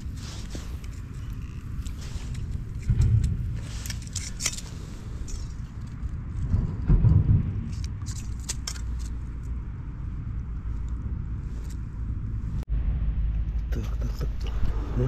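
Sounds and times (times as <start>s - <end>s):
fishing tackle clicking and rustling: 0.0s - 6.6s, 7.7s - 9.6s
low bumps: 0.0s - 15.0s
steady low rumble: 0.0s - 15.0s.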